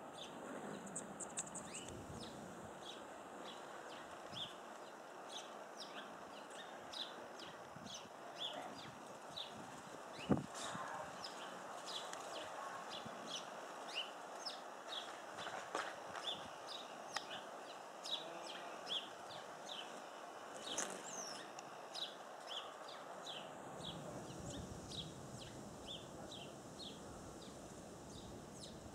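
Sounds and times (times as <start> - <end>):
background hiss: 0.0 - 28.9
small bird chirping: 0.2 - 28.8.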